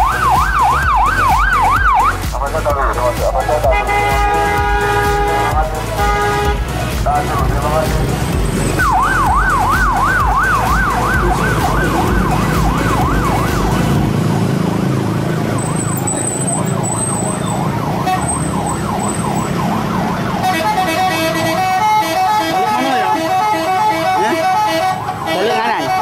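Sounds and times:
bus horn wailing like siren: 0.0s - 2.2s, 3.5s - 7.9s, 8.5s - 14.2s, 15.0s - 26.0s
stepped multi-note horn tune: 3.0s - 14.1s, 20.3s - 26.0s.

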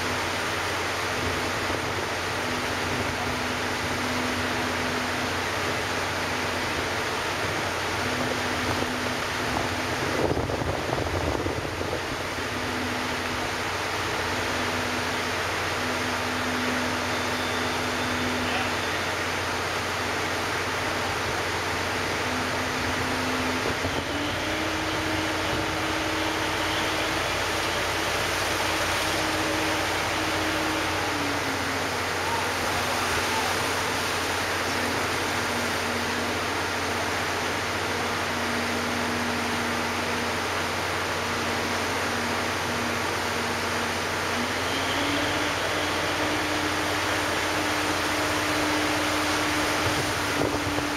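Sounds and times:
ferry engines droning: 0.0s - 50.9s
rushing noise: 0.0s - 50.9s
wind buffeting microphone: 8.6s - 12.6s, 49.5s - 50.9s.

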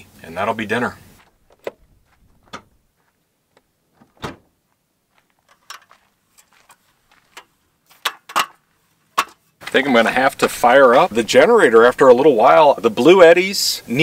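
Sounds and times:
loud thump: 4.0s - 4.5s.

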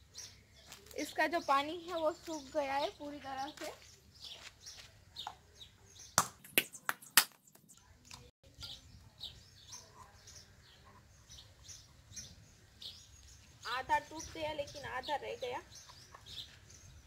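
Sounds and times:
birds chirping: 0.0s - 17.0s
coconut shell knocks: 6.2s - 7.4s.

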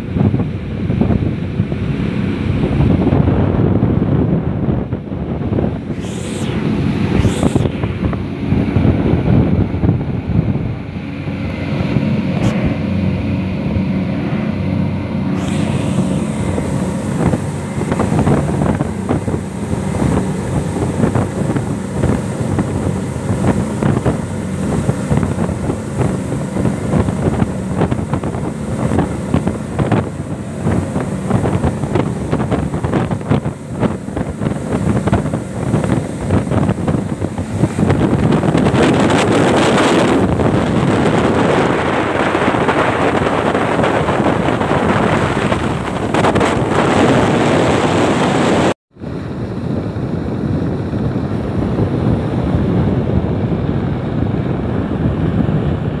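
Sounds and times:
outboard motors droning: 0.0s - 56.0s
rush of the wake: 0.0s - 56.0s
wind on microphone: 0.0s - 56.0s.

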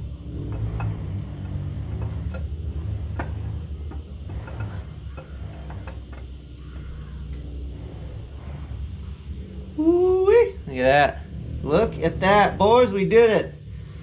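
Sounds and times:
camshaft clicking in bearings: 0.0s - 7.9s
steady low hum: 0.0s - 14.0s.

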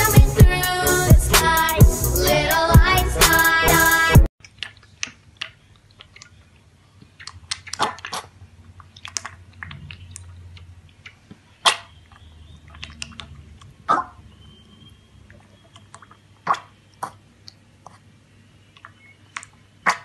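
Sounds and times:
piglet slurping milk: 4.4s - 14.2s.

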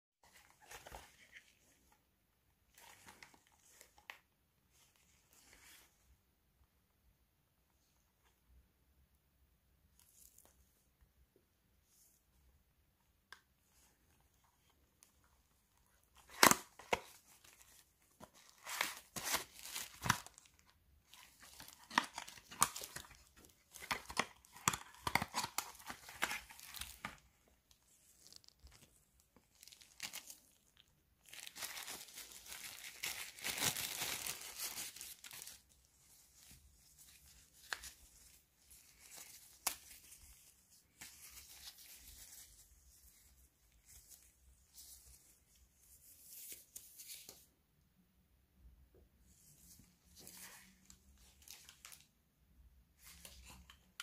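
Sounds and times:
plastic wrapper crinkling: 16.2s - 42.6s.

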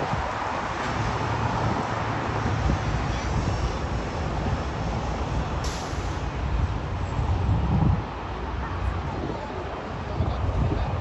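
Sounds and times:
brief high hiss: 5.6s - 6.2s.

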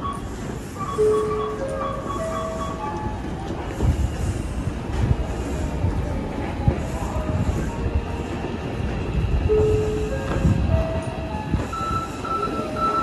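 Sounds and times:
train rumble: 0.0s - 13.0s.

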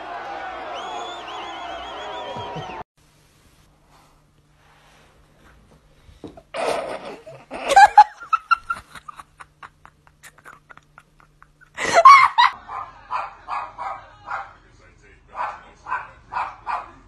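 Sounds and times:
people laughing: 6.6s - 13.9s.

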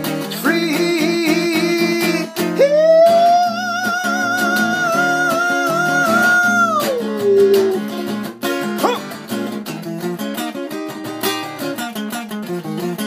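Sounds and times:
acoustic guitar: 0.0s - 13.0s
person singing held note: 6.8s - 7.9s.

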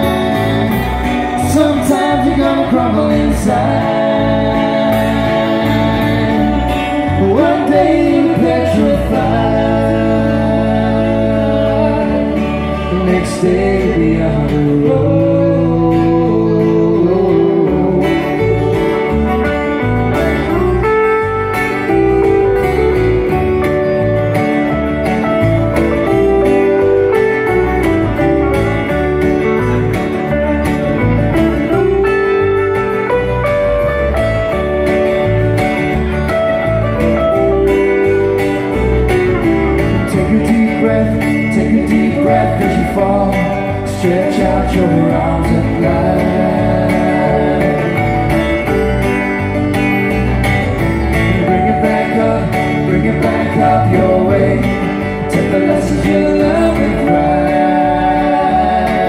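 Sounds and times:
person singing: 0.0s - 19.8s, 39.7s - 49.0s, 51.4s - 59.0s
electric guitar: 0.0s - 59.0s
strummed acoustic guitars: 0.0s - 59.0s.

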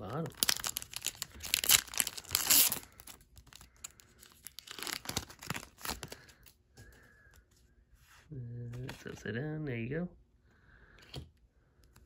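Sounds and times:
foil wrapper ripping: 0.0s - 6.3s
wrapper crinkling: 0.0s - 6.5s.

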